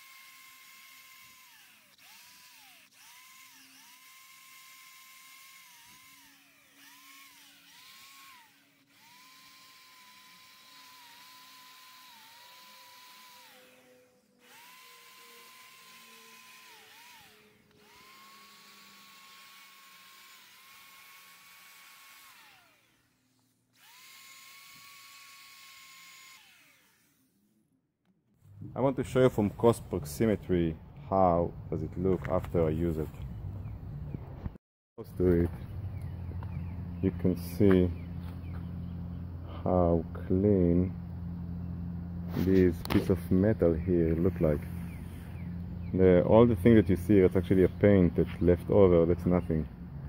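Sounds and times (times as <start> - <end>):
electric drill whining: 0.0 - 27.6.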